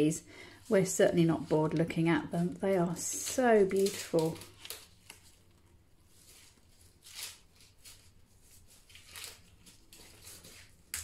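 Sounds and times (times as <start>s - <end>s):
corn husks rustling and crackling: 2.6s - 5.3s.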